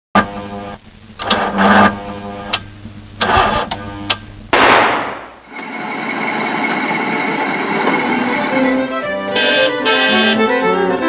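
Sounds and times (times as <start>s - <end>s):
loud cartoon burst: 4.6s - 5.5s.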